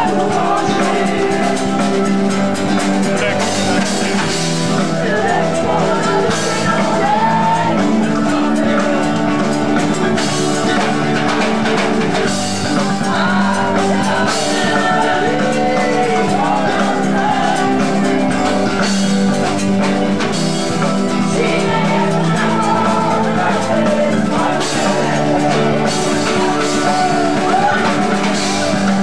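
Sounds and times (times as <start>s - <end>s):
bass guitar: 0.0s - 29.0s
drum kit: 0.0s - 29.0s
electric guitar: 0.0s - 29.0s
woman singing: 5.0s - 9.6s, 12.8s - 18.6s, 21.2s - 29.0s.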